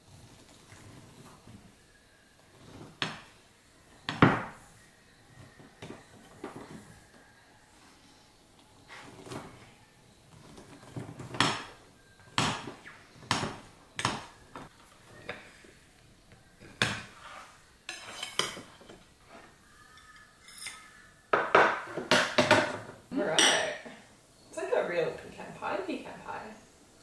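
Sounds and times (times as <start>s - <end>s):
knife scraping a plate: 17.1s - 21.0s
plate and cutlery clatter: 17.9s - 19.0s, 19.9s - 23.8s.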